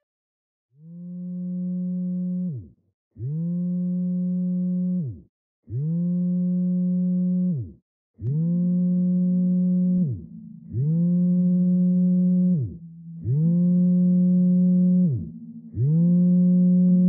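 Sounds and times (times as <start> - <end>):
phone vibrating on hard surface: 8.3 - 17.0.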